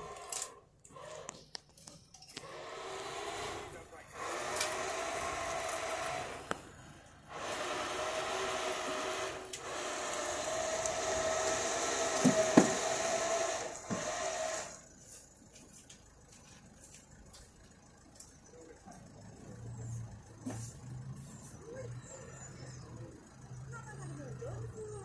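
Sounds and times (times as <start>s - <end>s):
motor whining: 0.0s - 1.6s, 2.3s - 14.9s.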